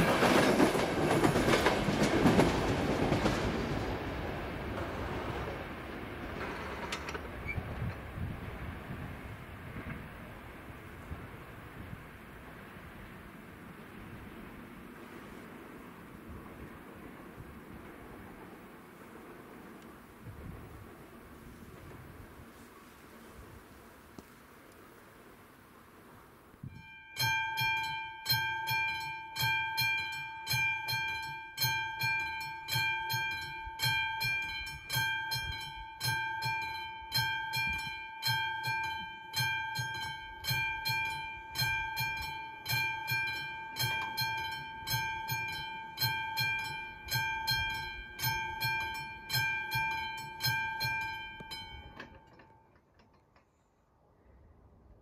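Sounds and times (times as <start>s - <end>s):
level-crossing warning bell: 26.6s - 53.2s.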